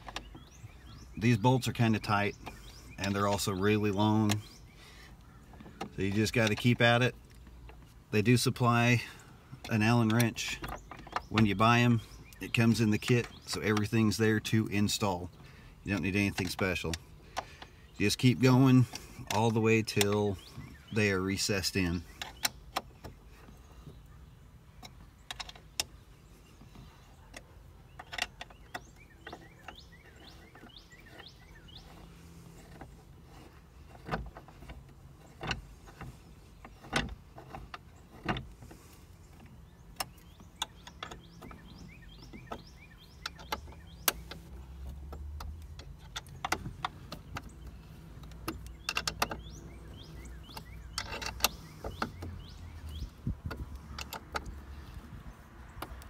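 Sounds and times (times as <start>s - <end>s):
allen wrench clicking on bolts: 39.4s - 56.0s.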